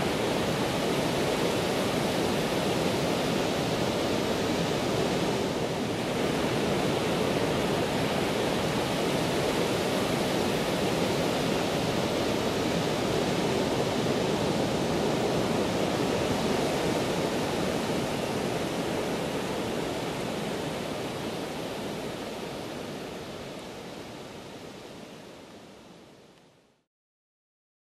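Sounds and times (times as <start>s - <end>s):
ocean surf breaking on beach: 0.0s - 26.0s.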